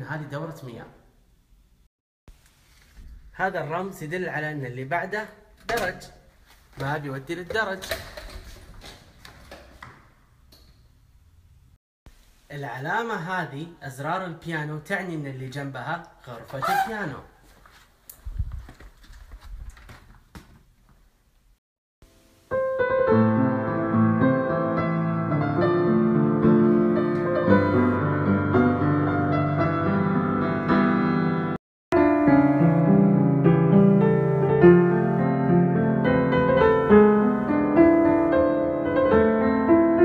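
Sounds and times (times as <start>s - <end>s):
acoustic piano chords and melody: 22.1s - 40.0s.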